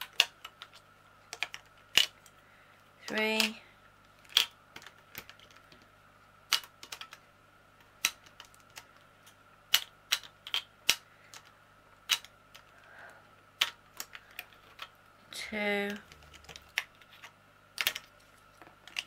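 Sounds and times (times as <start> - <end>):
plastic beads clicking into box: 0.0 - 2.2, 4.2 - 5.8, 6.5 - 7.2, 8.0 - 12.7.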